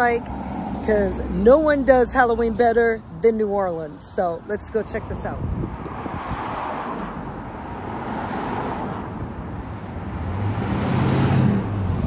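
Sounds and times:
cars rushing by: 0:00.0 - 0:03.3, 0:04.2 - 0:12.0
vehicle engine hum approaching: 0:05.4 - 0:12.0.

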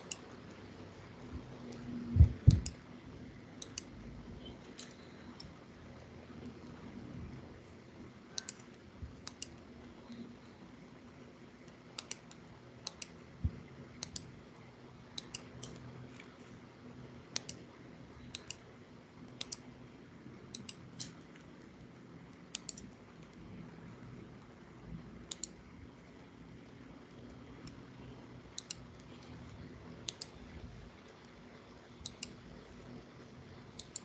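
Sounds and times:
computer mouse clicks: 0:00.0 - 0:00.6, 0:01.6 - 0:02.8, 0:03.5 - 0:05.6, 0:08.3 - 0:10.4, 0:11.6 - 0:14.4, 0:15.1 - 0:16.4, 0:17.3 - 0:19.7, 0:20.5 - 0:21.5, 0:22.3 - 0:23.4, 0:25.2 - 0:25.6, 0:28.5 - 0:30.6, 0:31.9 - 0:32.5, 0:33.7 - 0:34.0
faint steady hum: 0:00.0 - 0:34.0.

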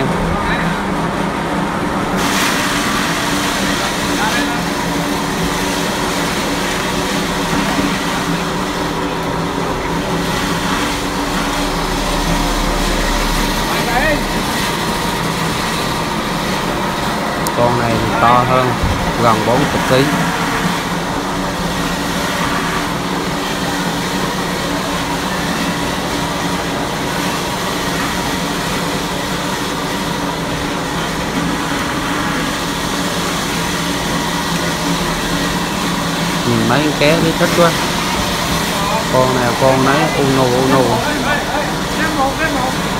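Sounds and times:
engine droning: 0:36.4 - 0:42.8.

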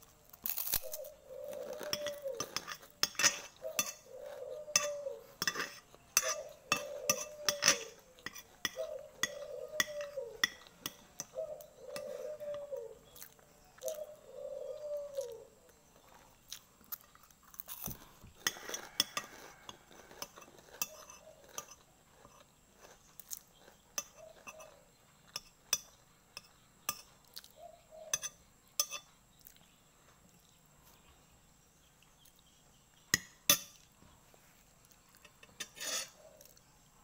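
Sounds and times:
chewing: 0:00.4 - 0:14.2, 0:15.1 - 0:24.8
metal spoon scraping glass plate: 0:01.8 - 0:11.3, 0:18.4 - 0:22.4, 0:35.2 - 0:36.2.

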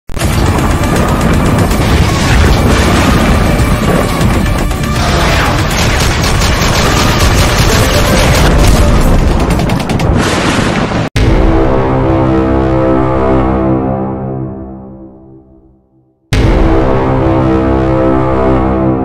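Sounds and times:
action music: 0:00.1 - 0:10.3, 0:11.2 - 0:19.0
rapid gunfire: 0:00.2 - 0:11.1
deep booms: 0:00.2 - 0:13.2, 0:16.3 - 0:18.8.

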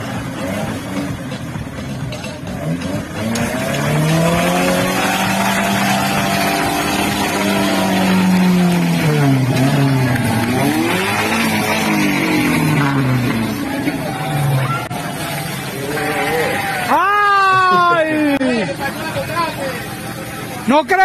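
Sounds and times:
engine revving hard: 0:02.5 - 0:16.9.

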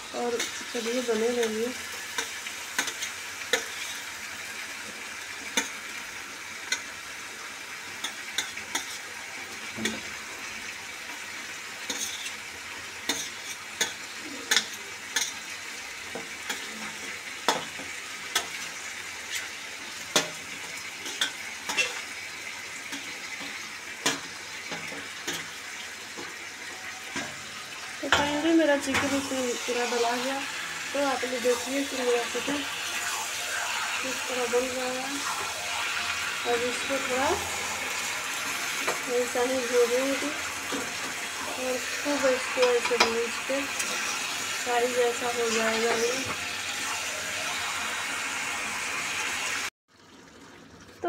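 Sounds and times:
onions sizzling in oil: 0:00.0 - 0:51.0
metal spatula clinking and scraping: 0:11.9 - 0:12.4, 0:13.1 - 0:15.4, 0:21.0 - 0:22.0.

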